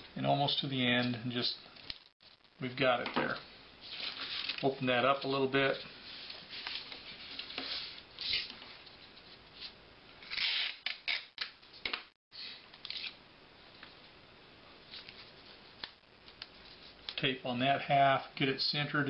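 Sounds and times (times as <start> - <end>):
sticky tape tearing: 10.2 - 11.5.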